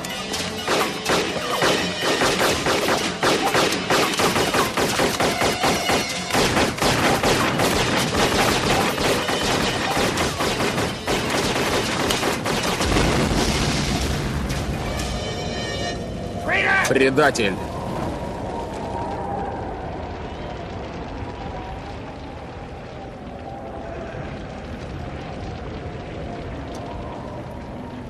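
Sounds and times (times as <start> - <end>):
large explosion rumbling: 12.4 - 15.1, 17.0 - 28.0.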